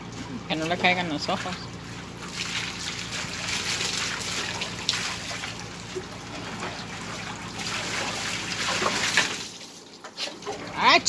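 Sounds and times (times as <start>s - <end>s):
water pouring and splashing: 0.0s - 11.0s.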